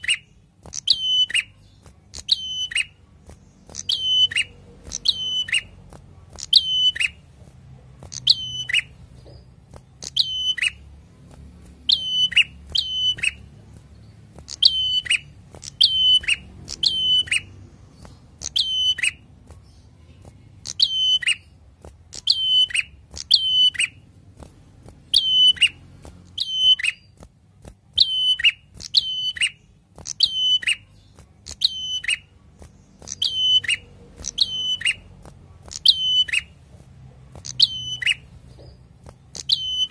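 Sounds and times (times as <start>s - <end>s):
bird singing sharp notes: 0.0s - 5.8s, 8.1s - 10.8s, 11.8s - 24.0s, 28.0s - 35.1s, 37.4s - 39.9s.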